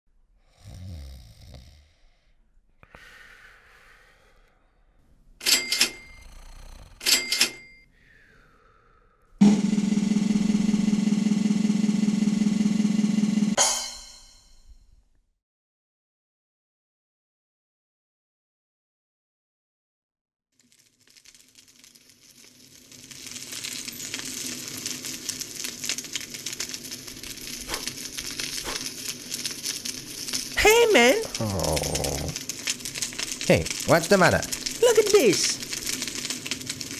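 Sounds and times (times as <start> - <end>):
low rasping snore: 0.5 - 2.2, 6.0 - 7.0
fire crackling and sizzling: 5.1 - 7.3, 9.4 - 14.2, 20.6 - 36.9
fire popping: 5.2 - 7.3, 20.6 - 36.9.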